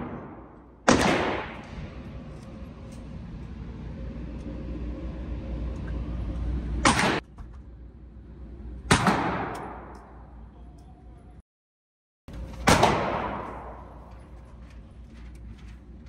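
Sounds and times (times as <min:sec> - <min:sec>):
gunshots with echo: 0:00.0 - 0:01.9, 0:08.9 - 0:10.0, 0:12.6 - 0:14.0
steady low hum: 0:00.0 - 0:11.4, 0:12.3 - 0:16.0.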